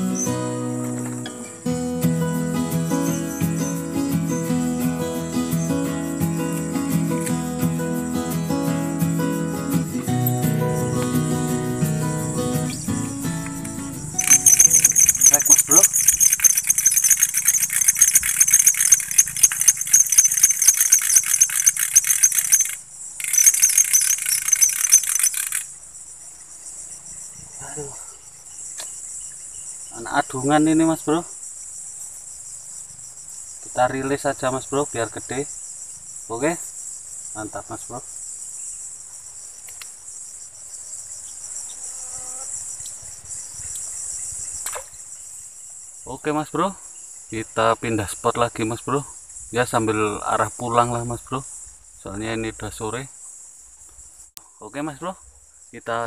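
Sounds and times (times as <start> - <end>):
high-pitched insect tone: 0.0 - 56.0
insect rattling call: 0.0 - 56.0
faint clicks: 39.6 - 39.9.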